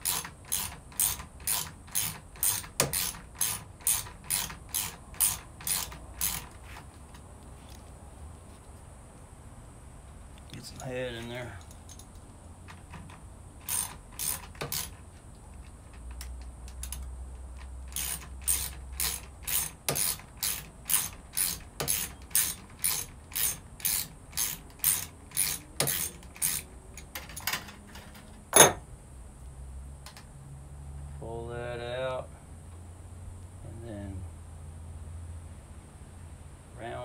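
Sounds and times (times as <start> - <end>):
sharp mechanical clicks: 0.0 - 6.6, 11.6 - 15.0, 15.6 - 27.7.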